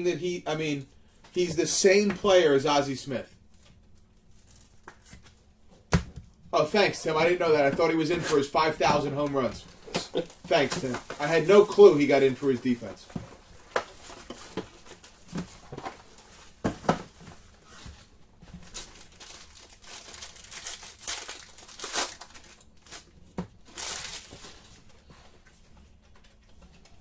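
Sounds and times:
foil wrapper tearing and crinkling: 0:18.6 - 0:24.4.

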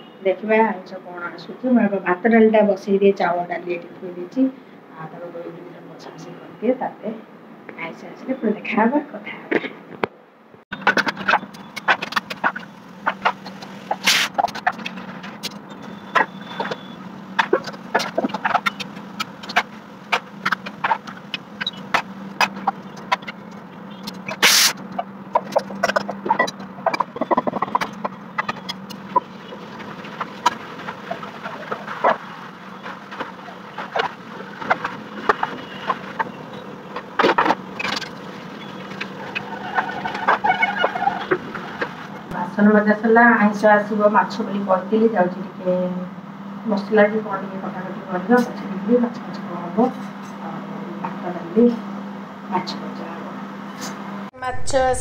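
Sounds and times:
low hum: 0:44.0 - 0:55.0.

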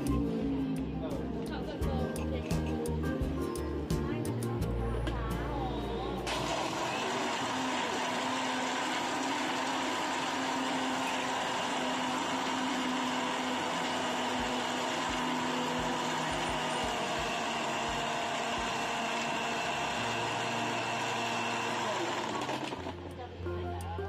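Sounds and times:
blender motor whirring: 0:06.3 - 0:23.2.

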